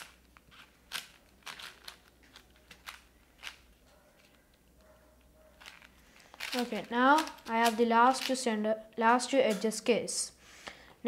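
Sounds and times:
puzzle cube plastic clicks: 0:00.0 - 0:04.4, 0:05.6 - 0:08.5.

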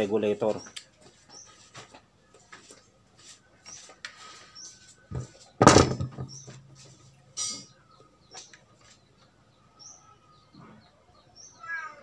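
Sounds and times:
rifle clattering on wooden table: 0:05.6 - 0:06.3.

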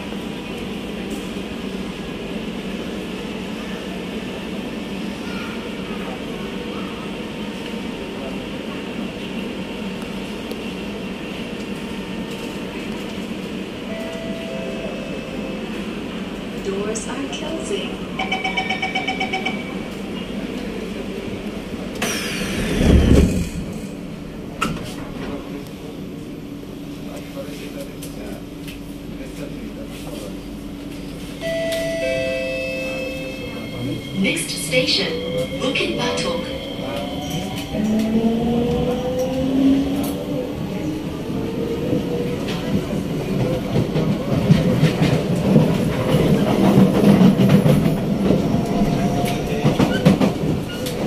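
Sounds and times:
train air-conditioning hum: 0:07.6 - 0:51.0
rapid warning beeps: 0:18.2 - 0:19.8.

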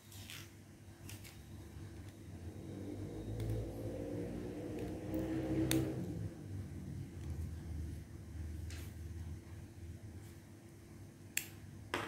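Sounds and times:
small fan motor whirring: 0:01.0 - 0:08.0.

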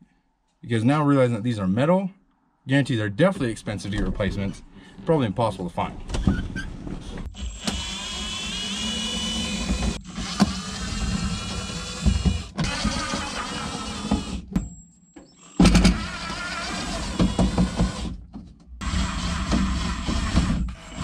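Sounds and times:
small electric motor whirring: 0:07.4 - 0:14.4.

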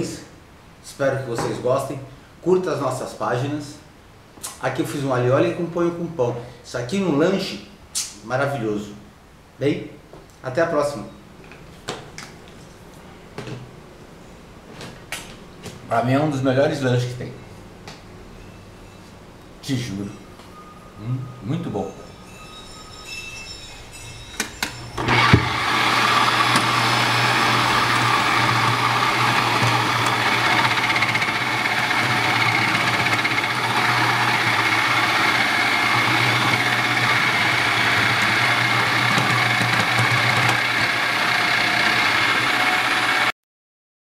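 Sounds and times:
food processor clicks: 0:25.0 - 0:43.3
food processor running: 0:25.0 - 0:43.3.

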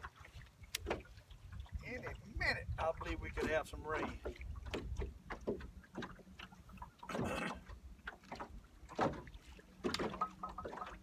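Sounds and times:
wind rumble on microphone: 0:00.0 - 0:05.6
water lapping against boat hull: 0:00.0 - 0:11.0.

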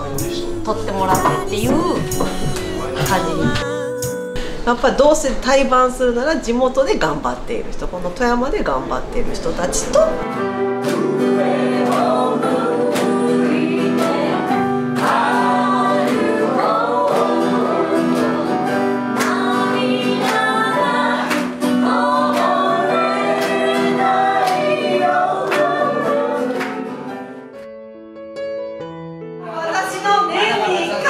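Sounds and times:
pop song with group vocals: 0:00.0 - 0:04.6, 0:10.2 - 0:27.3.

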